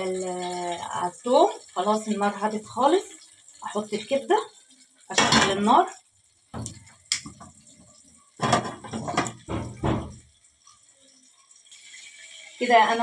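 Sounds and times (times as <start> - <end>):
pan clattering on stovetop: 5.1 - 5.8, 8.4 - 10.3.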